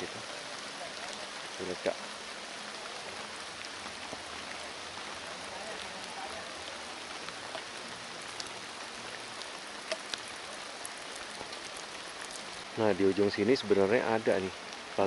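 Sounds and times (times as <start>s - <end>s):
rain hiss: 0.0s - 15.0s
raindrop ticks: 0.0s - 15.0s.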